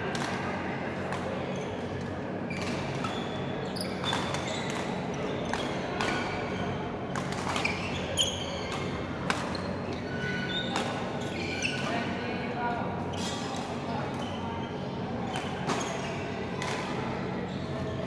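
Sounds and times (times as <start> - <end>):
low hall hum: 0.0 - 18.0
shoes squeaking on court floor: 1.5 - 12.1, 14.2 - 16.2, 17.4 - 18.0.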